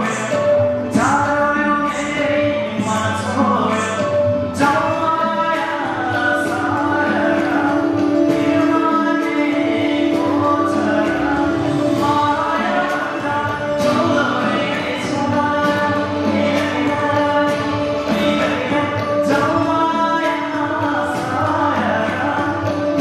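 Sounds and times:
backing music with percussion: 0.0s - 23.0s
man singing into a microphone: 0.0s - 23.0s.

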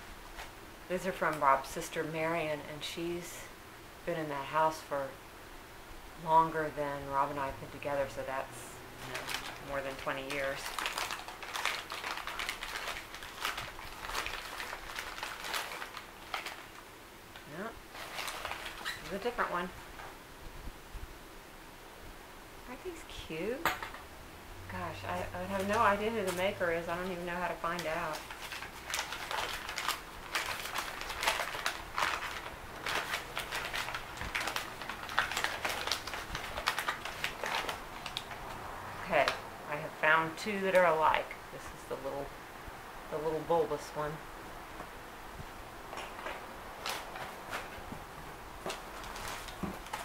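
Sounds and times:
newspaper crinkling and rustling: 9.0s - 19.7s, 25.1s - 39.4s, 45.9s - 50.0s.

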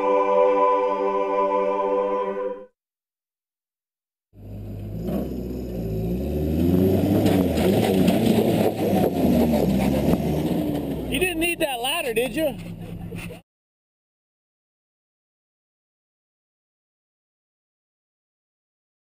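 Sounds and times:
held musical chord: 0.0s - 2.7s
truck engine revving: 4.4s - 13.4s.

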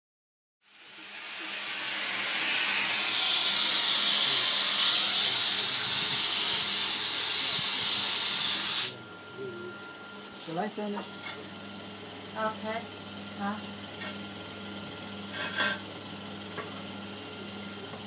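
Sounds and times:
spray gun hissing: 0.7s - 9.0s.

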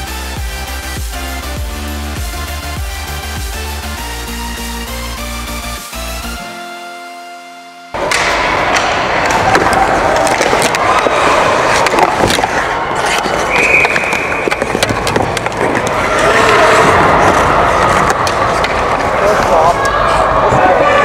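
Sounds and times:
players shouting: 8.0s - 14.8s, 15.6s - 21.0s
hockey sticks clacking: 8.0s - 20.9s
skate blades scraping ice: 9.2s - 20.2s.

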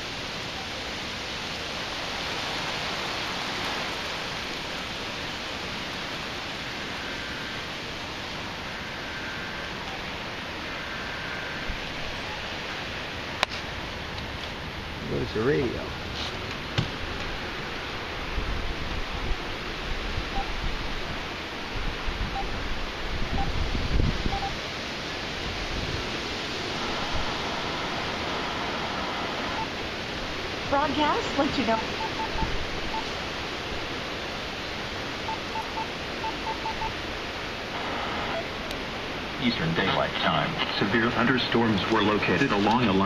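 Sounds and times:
rain falling on wet ground: 0.0s - 43.0s
radio beeps: 9.1s - 10.2s, 20.3s - 20.6s, 23.3s - 23.6s, 24.3s - 24.6s, 26.8s - 29.7s, 30.7s - 33.1s, 35.2s - 37.0s, 37.8s - 38.5s, 39.4s - 43.0s.

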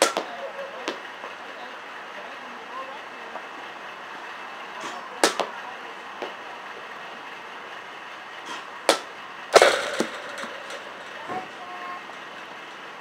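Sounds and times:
steady background hiss: 0.0s - 13.0s
sharp knocks: 9.6s - 11.4s.

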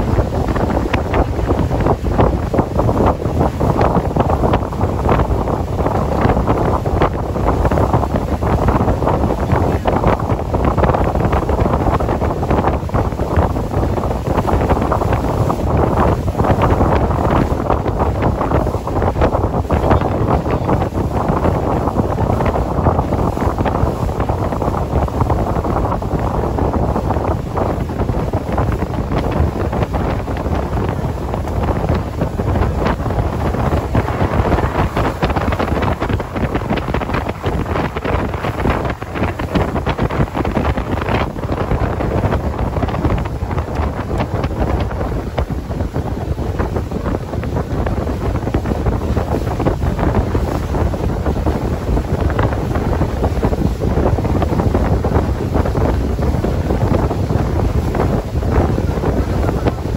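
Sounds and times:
rushing water: 0.0s - 59.9s
wind buffeting microphone: 0.0s - 59.9s
boat motor: 29.1s - 45.5s.

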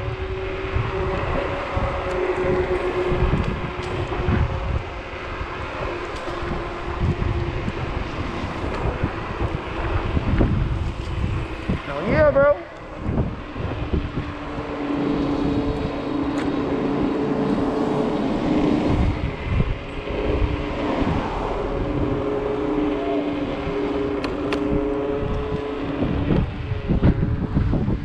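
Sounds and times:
road noise: 0.0s - 28.0s
wind buffeting microphone: 0.0s - 28.0s.

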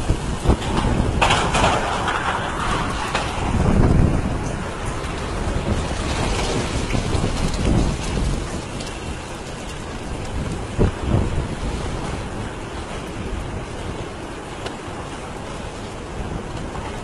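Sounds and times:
heavy rain rushing: 0.0s - 17.0s
low rumbling: 0.0s - 17.0s.

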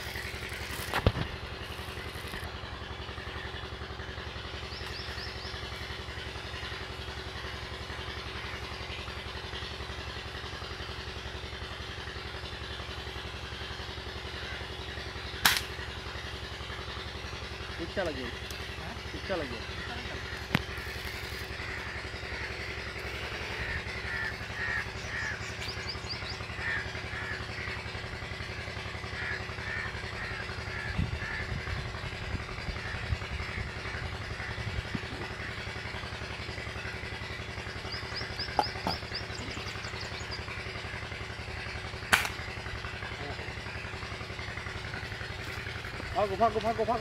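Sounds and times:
low engine hum: 0.0s - 47.0s
small birds chirping: 4.4s - 6.7s, 17.8s - 27.7s, 36.9s - 41.0s
crows cawing: 14.3s - 14.9s, 19.2s - 28.1s, 29.0s - 31.8s, 32.7s - 36.0s, 37.9s - 40.3s.

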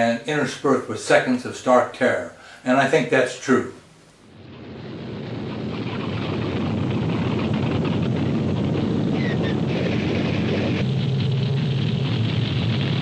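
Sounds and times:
propeller airplane engine running: 5.6s - 13.0s.

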